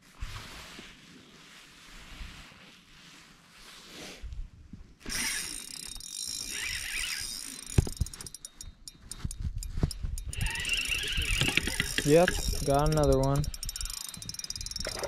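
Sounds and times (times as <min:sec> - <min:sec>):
fishing reel clicking: 0:05.0 - 0:15.0
rod handling knocks: 0:11.1 - 0:15.0.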